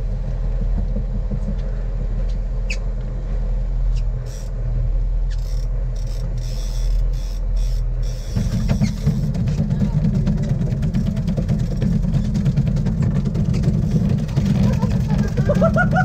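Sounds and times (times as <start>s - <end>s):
boat engine low rumble: 0.0s - 16.0s
brief squeak: 5.3s - 9.3s.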